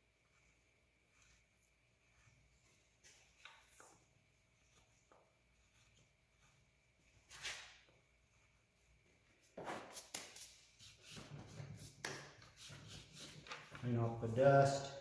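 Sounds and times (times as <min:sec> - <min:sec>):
hands brushing dust: 0:04.6 - 0:08.6, 0:09.4 - 0:13.8.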